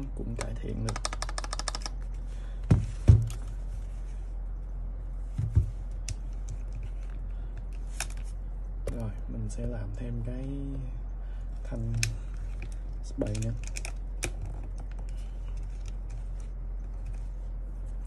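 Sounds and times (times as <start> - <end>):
keyboard keys clicking: 0.4 - 2.0.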